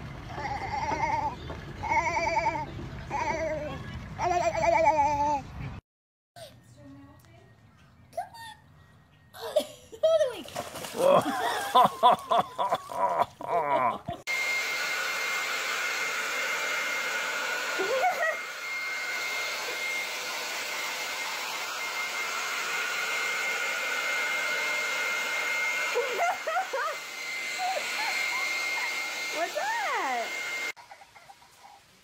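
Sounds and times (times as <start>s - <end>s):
hair dryer running: 0.0s - 3.6s, 14.2s - 30.8s
people laughing: 10.9s - 14.2s, 26.0s - 27.0s.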